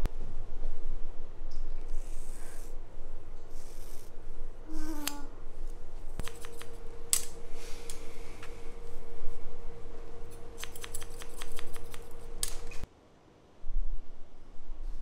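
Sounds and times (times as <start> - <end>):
scissors snipping hair: 6.1 - 8.0, 10.3 - 12.8
scissor blades clicking: 10.4 - 12.7.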